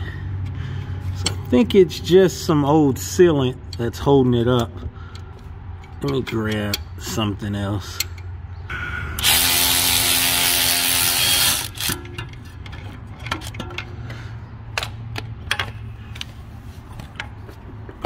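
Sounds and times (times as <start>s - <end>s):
tools clicking and tapping: 0.4s - 1.5s, 3.6s - 7.0s, 8.0s - 8.3s, 11.4s - 16.3s
cordless ratchet running: 9.2s - 12.0s.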